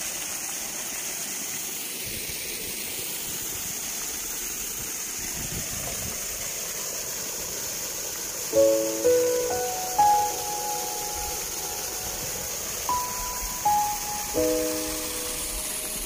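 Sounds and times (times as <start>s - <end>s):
water gushing into a channel: 0.0s - 9.2s.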